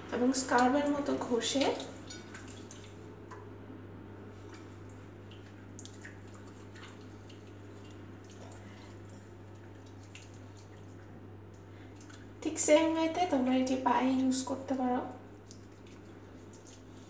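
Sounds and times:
steady low hum: 0.0s - 17.0s
water dripping into sink: 0.4s - 3.6s, 4.4s - 12.4s, 15.1s - 16.9s
wet hands scrubbing skin: 1.5s - 3.0s, 4.4s - 11.0s, 15.4s - 17.0s.

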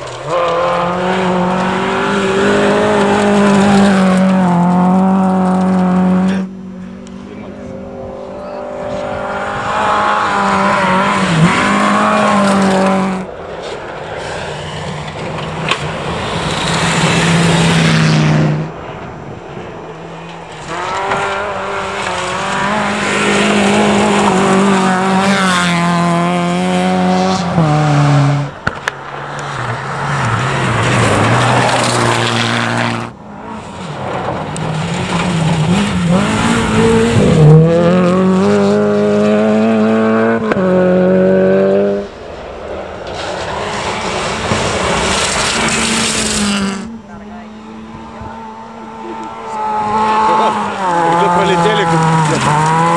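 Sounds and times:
rally car engines revving: 0.0s - 52.9s.

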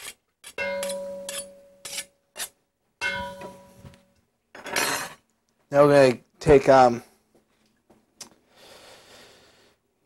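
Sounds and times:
metal bowl ringing: 0.6s - 1.8s, 3.0s - 4.1s.

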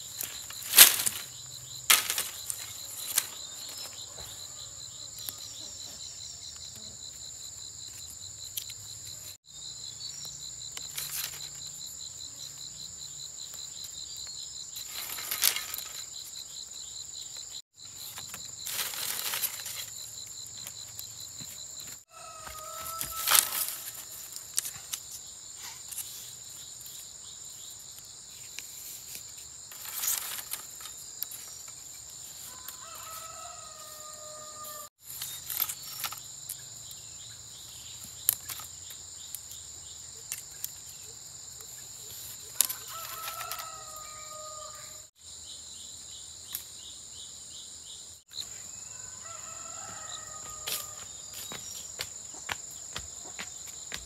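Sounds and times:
high-pitched insect chorus: 0.0s - 54.0s
rooster crowing: 22.1s - 23.9s, 32.5s - 34.9s, 42.6s - 45.1s, 48.9s - 51.1s.

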